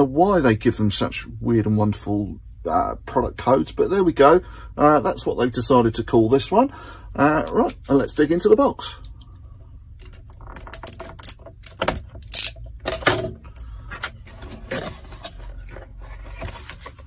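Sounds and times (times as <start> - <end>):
tape seal peeling: 10.0 - 13.1
cardboard and paper rustling: 13.2 - 17.0.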